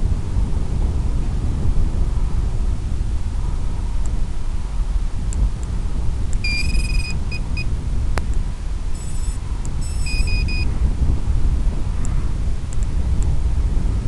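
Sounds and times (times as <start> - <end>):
wind rumble on microphone: 0.0 - 14.0
electronic start-up beeps: 6.4 - 7.7, 9.0 - 10.7.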